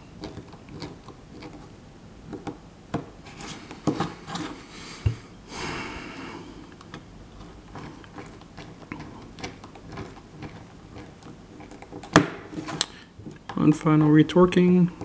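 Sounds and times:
faint clicks and scrapes: 0.1 - 2.6, 6.7 - 15.0.

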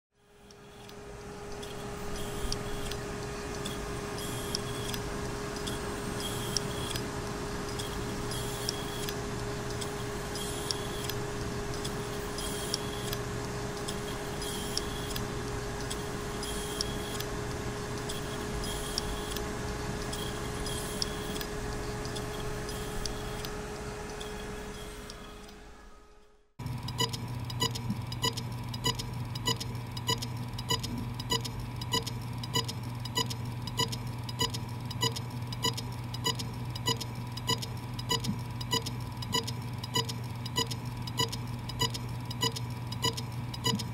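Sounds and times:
hard drive spinning whine: 0.2 - 27.7
hard drive scratchy clicks: 0.5 - 25.2.

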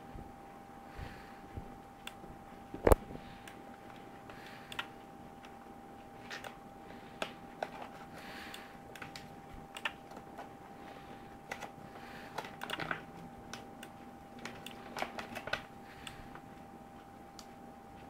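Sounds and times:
faint electronic hum: 0.0 - 18.0
computer controls clicking: 2.8 - 5.6, 8.5 - 10.5, 11.5 - 16.2.

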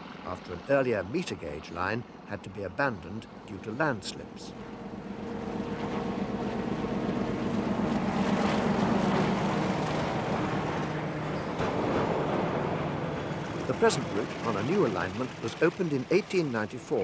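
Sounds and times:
diesel locomotive engine hum: 0.0 - 17.0
coaches rumbling on rails: 4.1 - 17.0.

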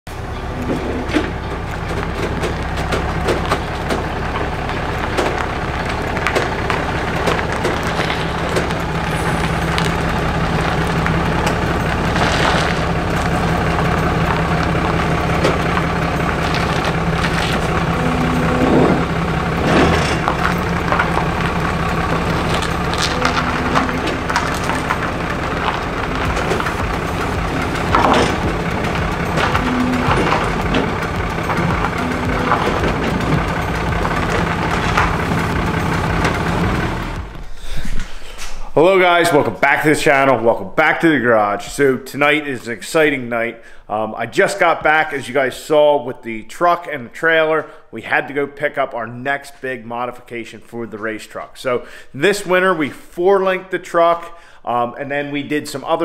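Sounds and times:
tires crunching on gravel: 0.1 - 37.6
truck engine running: 0.1 - 37.8
trailer cracks and knocks: 0.2 - 37.5.

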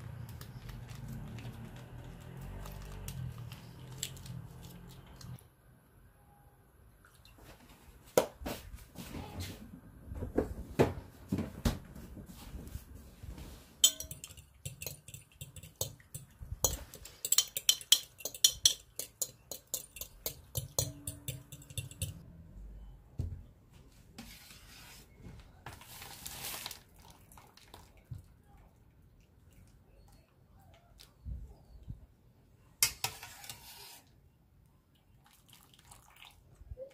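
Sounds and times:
utensil clinking in glass bowl: 13.8 - 22.2
spaghetti rustling into bowl: 24.2 - 28.0.

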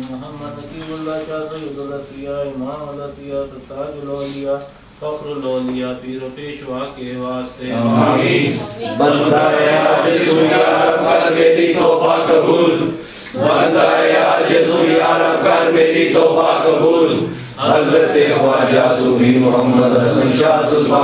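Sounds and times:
men chanting in unison: 7.6 - 21.0.

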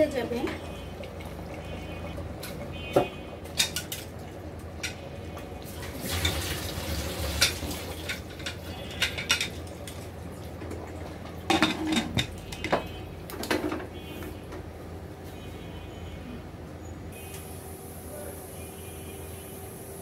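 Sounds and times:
metal cookware clinking: 3.4 - 4.1, 7.3 - 10.0.

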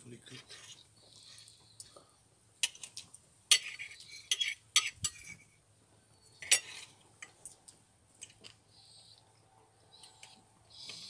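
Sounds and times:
knife and fork scraping plate: 3.5 - 5.5, 6.4 - 7.0.

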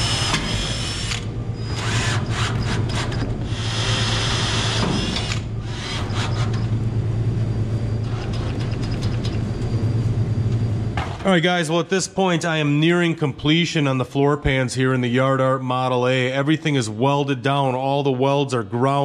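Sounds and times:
cordless drill whining: 0.0 - 2.8, 3.5 - 6.6.

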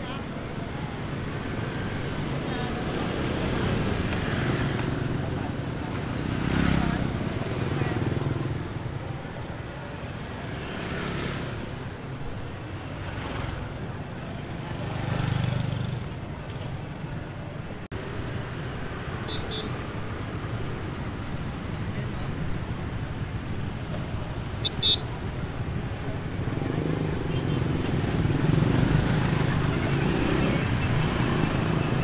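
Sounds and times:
people's voices: 0.0 - 10.6
motorbikes and cars passing: 0.0 - 32.0.

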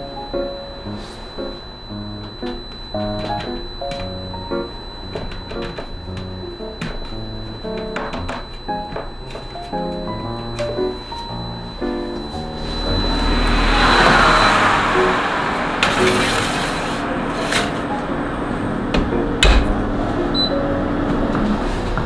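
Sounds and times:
short beep: 0.0 - 16.4, 20.4 - 20.6
oven fan running: 0.0 - 22.0
metal tray sliding onto rack: 15.7 - 17.9
tray and oven door clunks: 18.9 - 19.8.

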